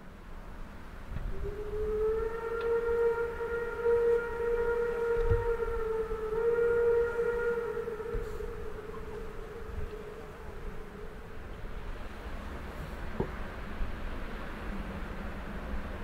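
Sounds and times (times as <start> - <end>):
steam whistle blast: 1.3 - 11.4.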